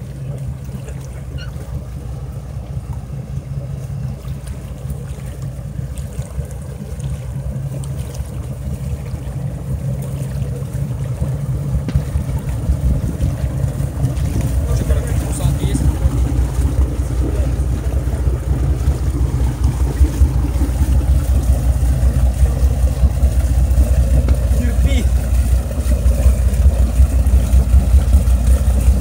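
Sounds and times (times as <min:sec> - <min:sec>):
boat engine running at low revs: 0:00.0 - 0:29.0
wind on microphone: 0:11.9 - 0:17.9.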